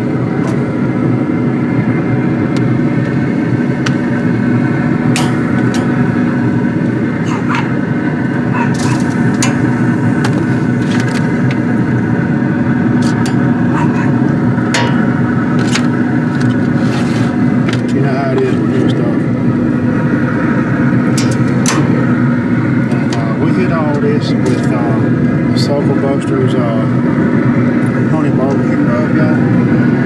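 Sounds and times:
steady machine hum: 0.0 - 30.0.

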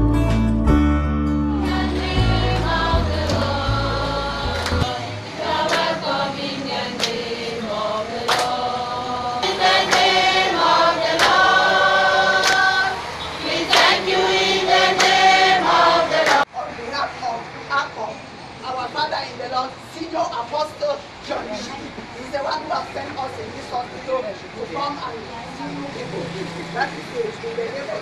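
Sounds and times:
bass-heavy music track: 0.0 - 4.9
group singing gospel: 1.4 - 16.5
hand claps: 4.5 - 4.9, 5.6 - 6.0, 7.0 - 7.2, 8.3 - 8.6, 9.8 - 10.1, 11.1 - 11.5, 12.4 - 12.7, 13.7 - 14.0, 15.0 - 15.2, 16.2 - 16.4.

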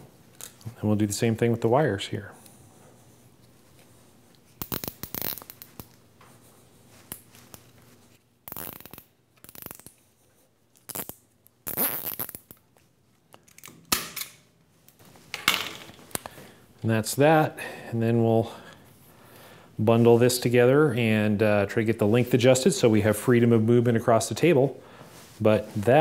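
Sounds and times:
cables being handled: 2.4 - 13.8
zip ties ratcheting: 4.6 - 6.0, 8.4 - 10.0, 10.8 - 12.6.

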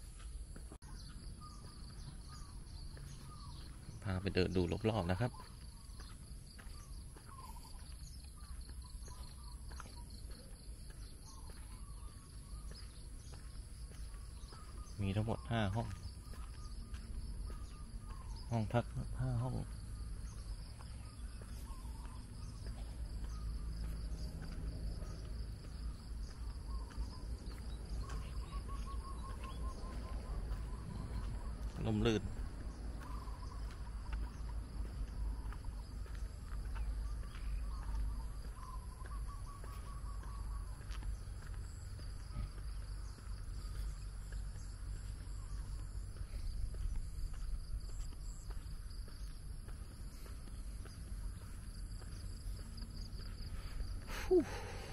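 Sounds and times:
insect drone: 5.3 - 54.9.

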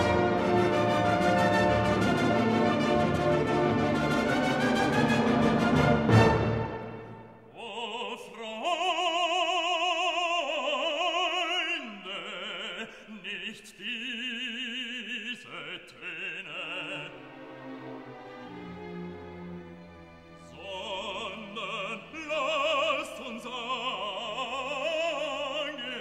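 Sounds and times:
soft orchestral accompaniment: 0.0 - 7.5, 16.4 - 26.0
operatic singing voice: 7.4 - 17.7, 20.4 - 26.0.

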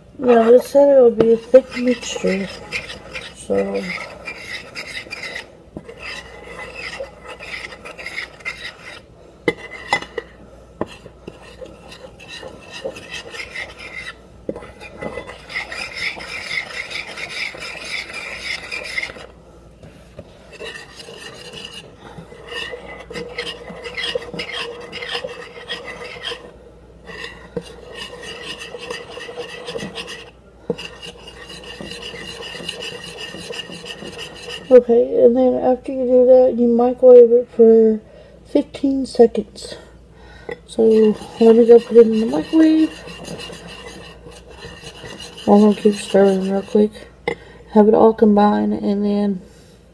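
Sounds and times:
spoon scraping ceramic bowl: 0.2 - 19.3, 20.5 - 26.5, 27.1 - 34.8, 40.7 - 47.0.

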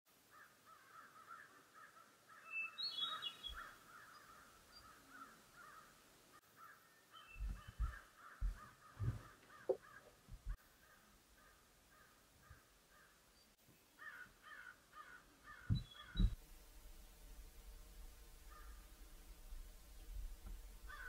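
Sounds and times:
crow-like bird calls: 0.3 - 13.2, 14.0 - 16.4, 18.4 - 18.9
high bird chirps: 2.4 - 5.0, 7.1 - 8.0, 15.5 - 16.4
low thumps: 7.4 - 10.6, 15.6 - 21.0.

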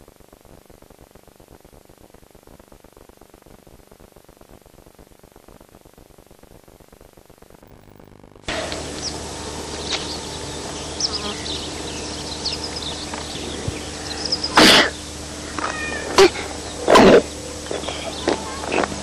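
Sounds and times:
low camcorder hum: 0.0 - 19.0
birds chirping: 8.5 - 19.0.

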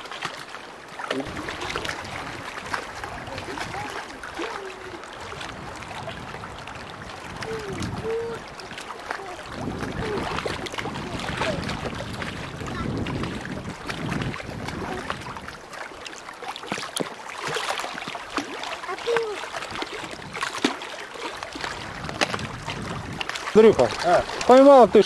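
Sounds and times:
small waves lapping and splashing: 0.0 - 25.0
wind buffeting the microphone: 1.2 - 15.7, 19.1 - 20.8, 21.4 - 25.0.

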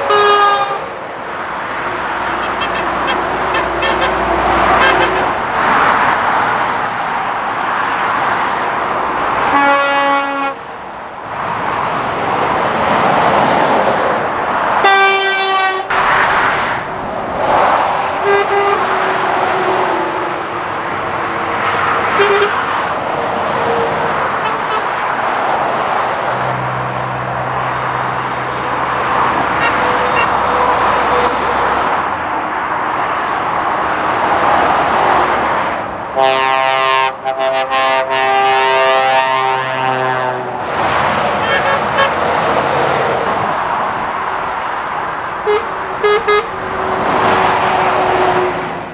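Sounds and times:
vehicle horn toots: 0.0 - 0.9, 2.3 - 5.4, 9.5 - 10.6, 14.8 - 15.9, 18.2 - 19.2, 22.2 - 22.6, 29.5 - 31.3, 36.2 - 40.5, 41.4 - 42.2, 45.4 - 46.5
vehicles passing at speed: 0.0 - 48.9.

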